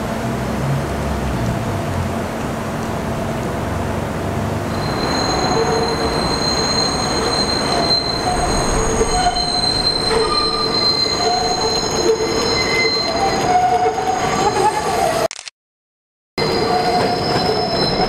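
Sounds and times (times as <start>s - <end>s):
rumble of train wheels: 0.0s - 15.2s
train wheels squealing: 4.7s - 15.2s, 16.4s - 18.0s.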